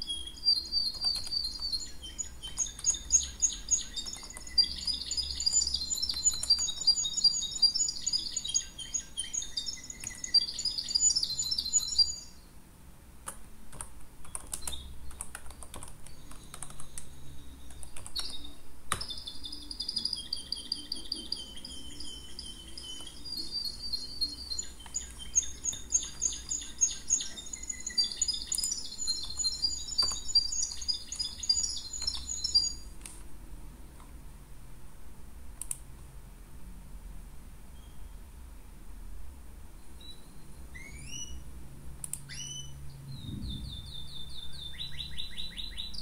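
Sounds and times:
birds chirping and singing: 0:00.0 - 0:12.5, 0:16.1 - 0:32.9, 0:42.3 - 0:46.0
computer keyboard typing: 0:00.8 - 0:01.7, 0:04.0 - 0:06.8, 0:13.2 - 0:17.1, 0:17.7 - 0:19.2, 0:28.5 - 0:31.4, 0:32.0 - 0:32.4.

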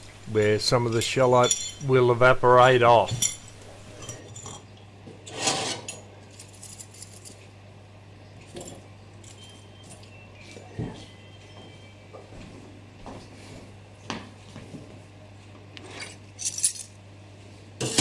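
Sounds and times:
metal parts clinking: 0:16.4 - 0:17.0.

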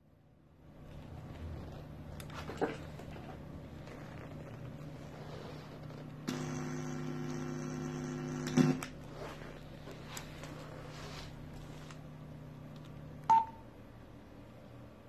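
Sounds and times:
speaker low hum: 0:00.6 - 0:14.8
loud buzz: 0:06.2 - 0:08.9.

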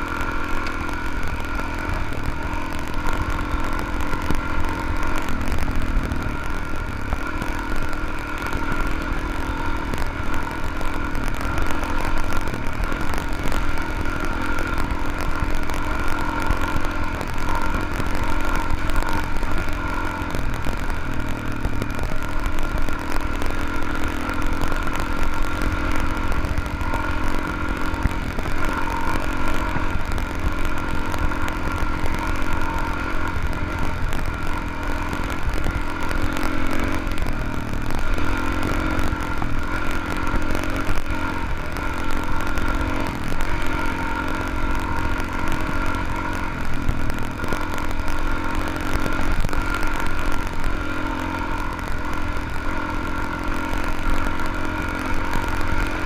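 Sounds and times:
deep rumble: 0:00.0 - 0:56.0
motorcycle engine running: 0:00.0 - 0:56.0.

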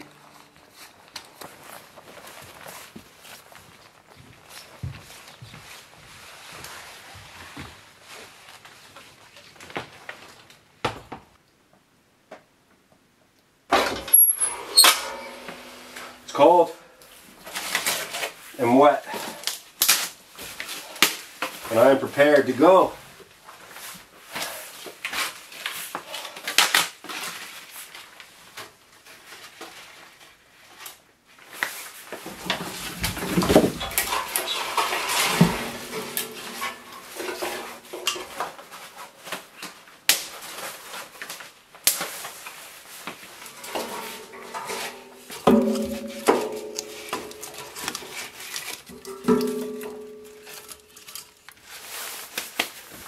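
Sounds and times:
twigs rustling: 0:00.0 - 0:07.0, 0:29.2 - 0:53.0
wood clinking against metal: 0:13.7 - 0:16.9, 0:32.3 - 0:38.6, 0:43.5 - 0:51.8
sticks clattering: 0:13.8 - 0:18.3, 0:32.3 - 0:38.7, 0:43.2 - 0:52.8.

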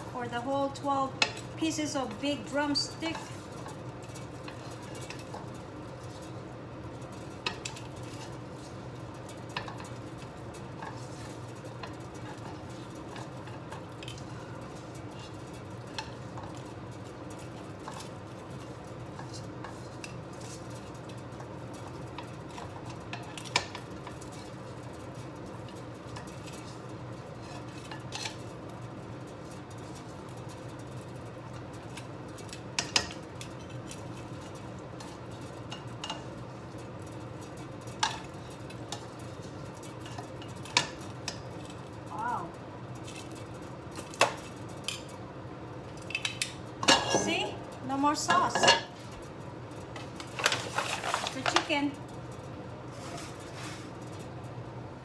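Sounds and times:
tongs clinking in a pan: 0:29.4 - 0:41.9, 0:45.9 - 0:49.1.

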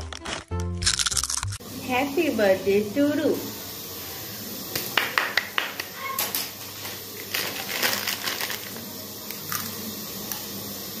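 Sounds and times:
crunchy snack being chewed: 0:00.0 - 0:01.6
plastic snack packet crinkling: 0:00.0 - 0:01.6, 0:07.2 - 0:08.9.

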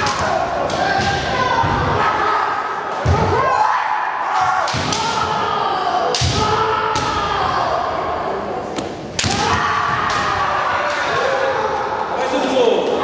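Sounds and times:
fighters shouting: 0:09.2 - 0:12.6.

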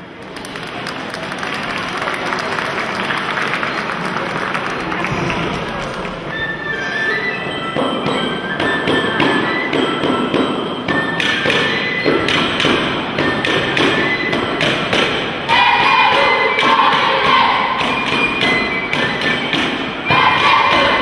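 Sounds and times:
shepherd's flute folk melody: 0:06.2 - 0:21.0
steady sharp knocks: 0:07.7 - 0:21.0.

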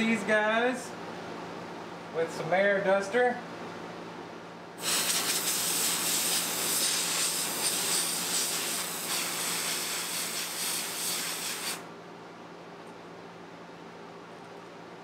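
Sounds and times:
compressed air spraying hiss: 0:04.8 - 0:11.8.

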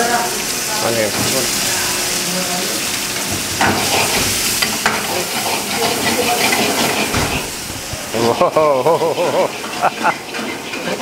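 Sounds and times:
onions sizzling in hot oil: 0:00.0 - 0:11.0
ladle scraping and knocking pan: 0:03.2 - 0:08.0.

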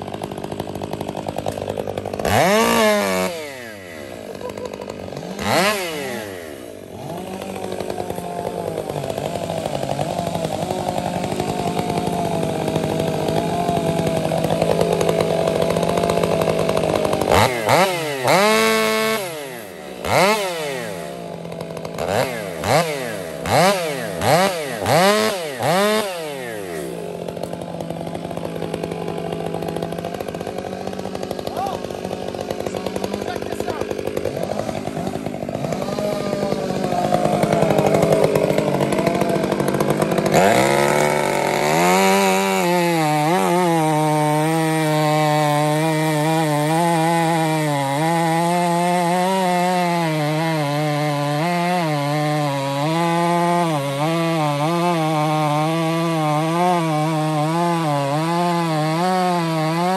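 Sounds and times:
chainsaw idling and revving: 0:00.0 - 0:59.9.

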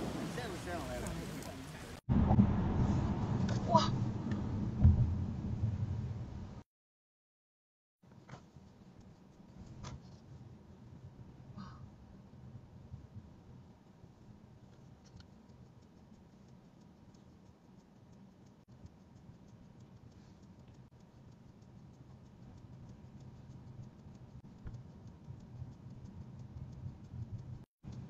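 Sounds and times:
light ticking: 0:15.0 - 0:28.0.

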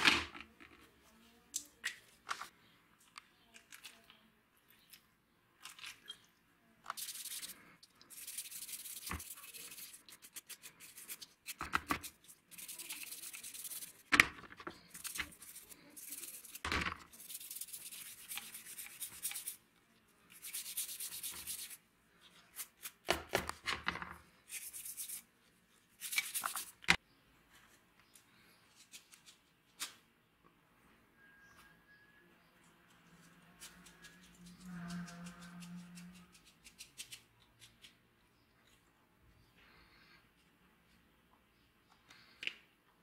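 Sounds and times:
toothbrush scrubbing plastic in liquid: 0:06.9 - 0:14.1, 0:14.7 - 0:19.6, 0:20.3 - 0:21.8.

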